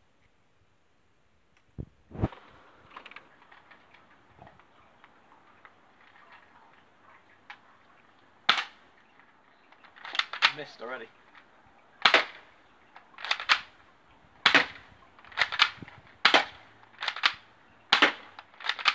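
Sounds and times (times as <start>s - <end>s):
bb gun handling clicks: 9.7s - 13.8s, 14.5s - 18.9s.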